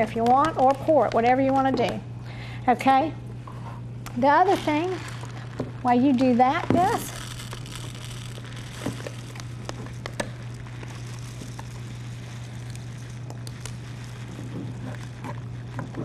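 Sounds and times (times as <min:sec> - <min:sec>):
steady low hum: 0:00.0 - 0:16.0
rice scooped from plastic bag: 0:04.2 - 0:16.0.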